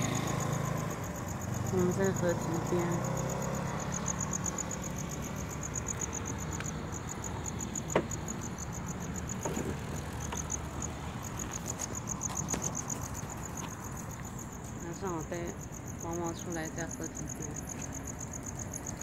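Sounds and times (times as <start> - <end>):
crickets chirping: 0.0 - 19.0.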